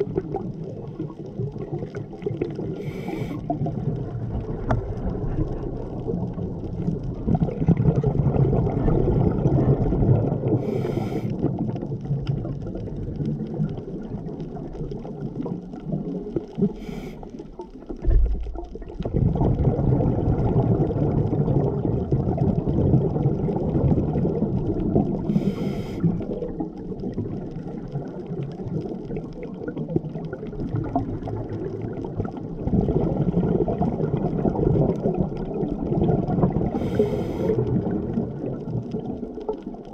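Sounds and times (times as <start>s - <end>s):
underwater exhaled bubbles: 0.0s - 39.9s
regulator inhale hiss: 2.8s - 3.5s, 10.6s - 11.4s, 16.7s - 17.4s, 25.3s - 26.2s, 36.7s - 37.7s.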